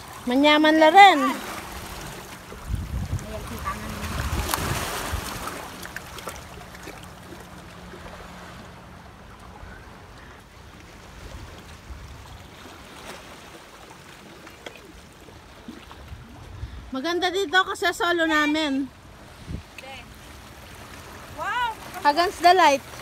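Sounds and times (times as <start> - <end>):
sea water washing among rocks: 0.0 - 8.4
wind buffeting microphone: 1.2 - 5.8, 16.0 - 20.1.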